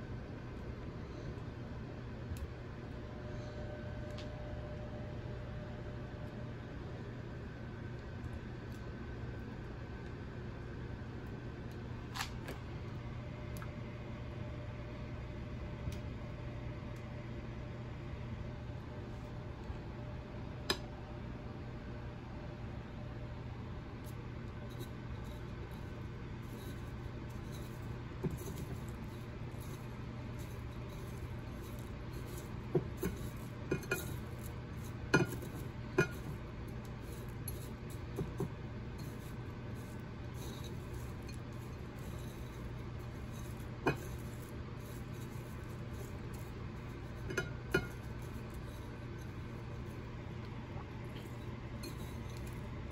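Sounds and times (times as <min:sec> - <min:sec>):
steady low hum: 0:00.0 - 0:52.9
metal tongs clinking on ceramic bowl: 0:24.7 - 0:49.9, 0:51.2 - 0:52.9.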